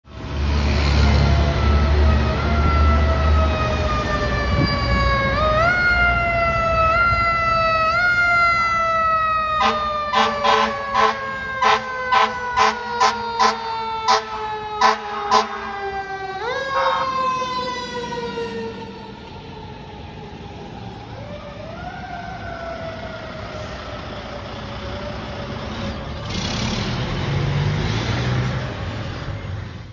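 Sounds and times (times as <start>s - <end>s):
fire engine siren wailing: 0.2s - 29.7s.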